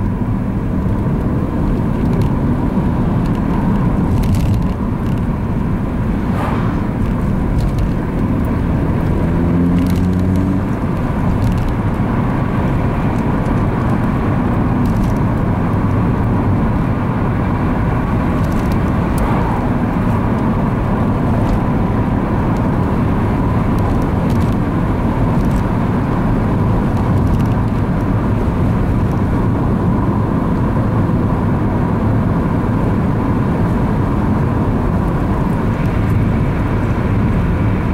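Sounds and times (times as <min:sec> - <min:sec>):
road and engine noise inside car: 0:00.0 - 0:37.9.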